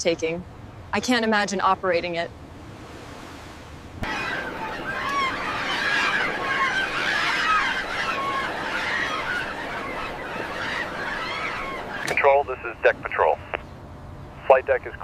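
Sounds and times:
seagulls calling: 0:04.0 - 0:13.9.

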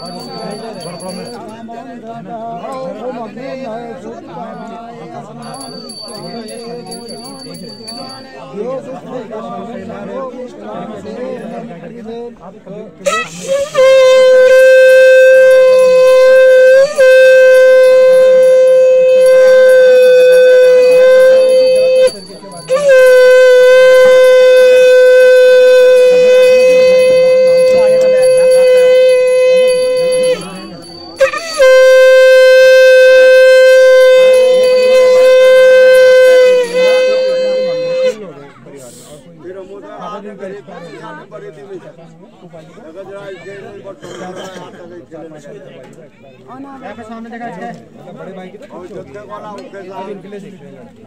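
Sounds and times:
conch shell blown in long note: 0:00.0 - 0:01.4, 0:13.0 - 0:38.3.

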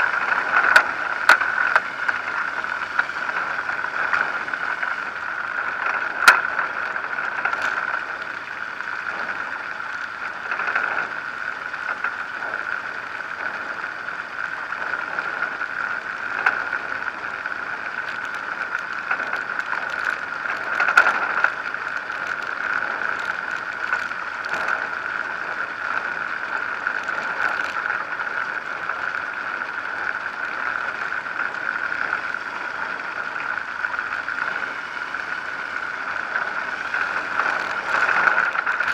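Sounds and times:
light aircraft engine and propeller: 0:00.0 - 0:38.9.

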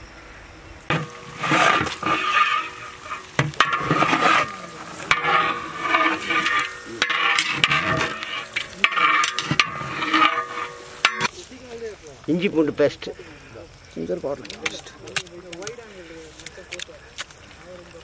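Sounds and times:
metal ladle scraping pot: 0:00.9 - 0:11.3
chicken sizzling: 0:00.9 - 0:13.0.

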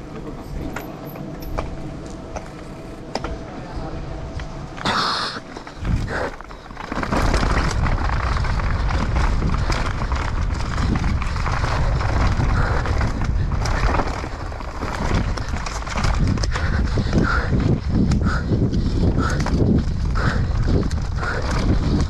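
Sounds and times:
bike chain and frame rattling: 0:00.0 - 0:03.5, 0:05.5 - 0:22.0
bike tyres on loose dirt: 0:00.0 - 0:22.0
wind rushing over microphone: 0:00.0 - 0:22.0.

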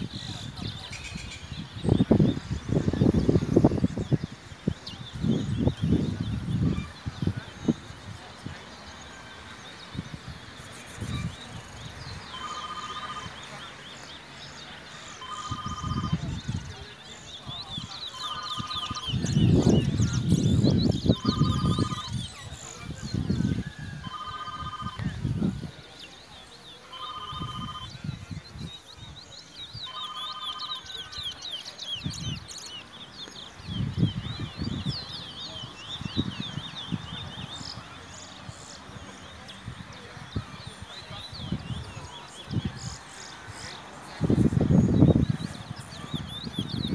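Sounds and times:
finches twittering song: 0:00.0 - 0:46.9
bullfinch chirping: 0:10.6 - 0:14.1, 0:14.9 - 0:22.5, 0:26.9 - 0:27.9, 0:29.6 - 0:37.7
short electronic beeps: 0:15.2 - 0:16.2.

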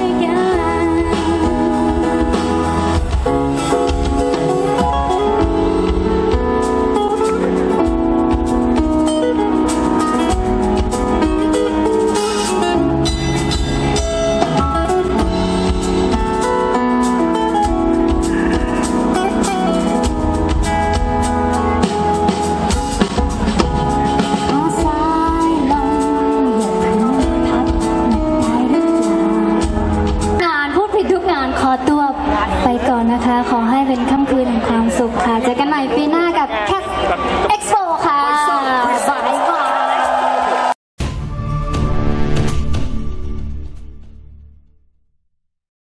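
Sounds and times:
drum kit beat: 0:00.0 - 0:30.5
live band playing pop song: 0:00.0 - 0:36.1.

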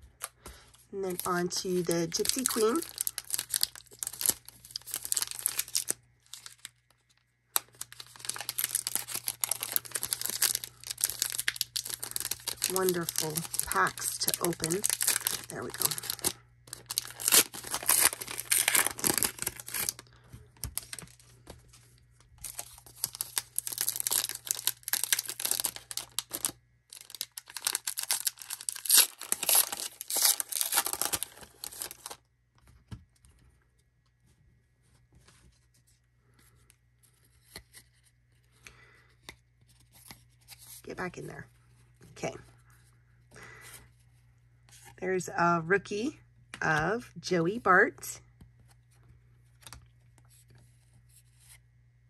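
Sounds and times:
card pack wrappers crinkling: 0:01.0 - 0:32.2.

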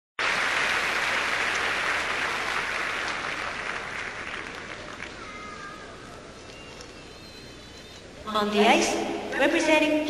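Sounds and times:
crowd applauding: 0:00.2 - 0:07.0.

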